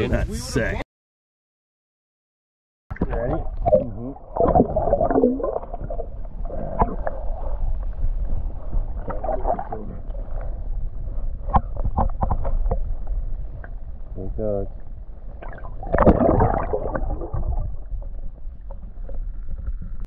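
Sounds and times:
sharp knocks underwater: 0:02.9 - 0:07.5, 0:11.4 - 0:13.8, 0:15.4 - 0:20.0
underwater low rumble with gurgling: 0:02.9 - 0:20.0.

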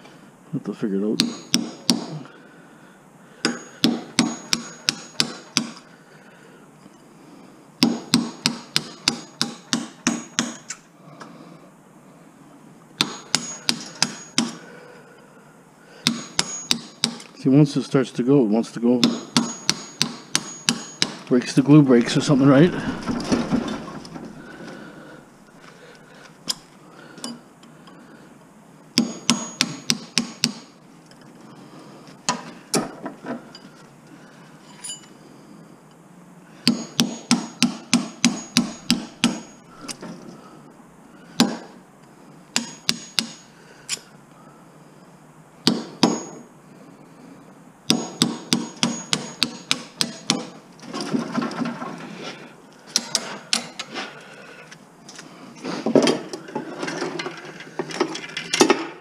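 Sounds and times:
hammer striking steel punch: 0:01.2 - 0:02.2, 0:03.4 - 0:05.8, 0:07.8 - 0:10.8, 0:13.0 - 0:14.6, 0:16.0 - 0:17.3, 0:19.0 - 0:21.3, 0:29.0 - 0:30.7, 0:36.6 - 0:39.6, 0:41.4 - 0:41.7, 0:42.6 - 0:43.5, 0:45.6 - 0:46.4, 0:47.9 - 0:50.6.

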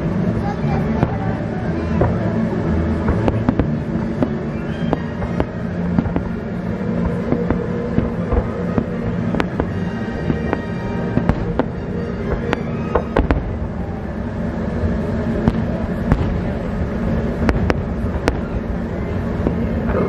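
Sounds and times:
music playing: 0:00.0 - 0:20.0
firework bangs and pops: 0:00.9 - 0:02.4, 0:03.0 - 0:13.6, 0:15.4 - 0:18.6.

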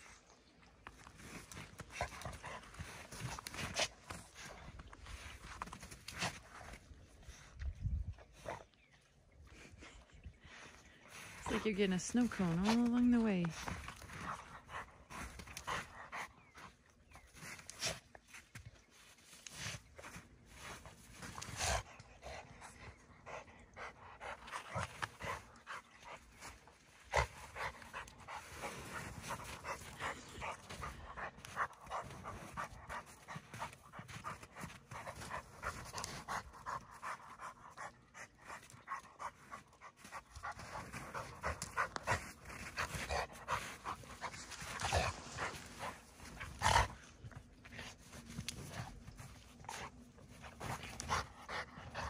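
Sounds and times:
crunching of slush and snow: 0:00.0 - 0:07.5, 0:16.4 - 0:21.8, 0:24.5 - 0:36.9, 0:39.4 - 0:52.0
dog panting: 0:10.6 - 0:18.1, 0:19.6 - 0:52.0.

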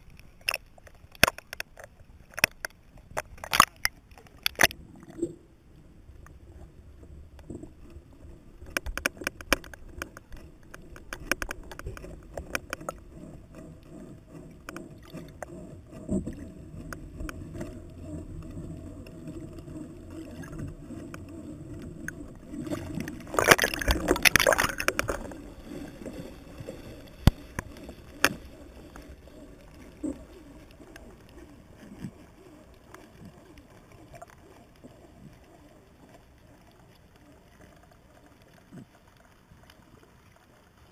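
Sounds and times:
sharp clicks and knocks: 0:00.1 - 0:05.2, 0:08.6 - 0:13.7, 0:20.4 - 0:29.1
muffled underwater noise: 0:04.2 - 0:40.9.

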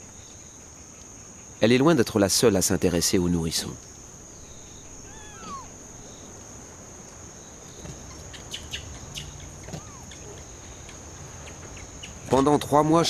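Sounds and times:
insects droning: 0:00.0 - 0:13.0
short falling squeaks: 0:05.0 - 0:05.8, 0:09.6 - 0:10.1.

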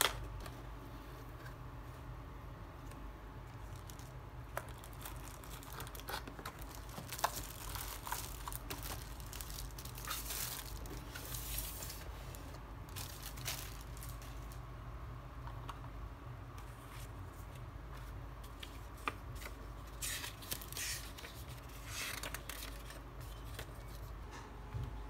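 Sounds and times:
plastic sleeve crinkling: 0:03.6 - 0:14.6, 0:18.5 - 0:24.1.

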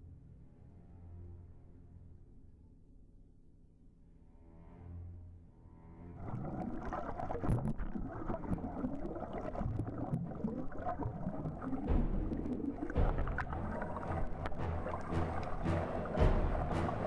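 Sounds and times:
muffled underwater rushing: 0:06.1 - 0:17.0.

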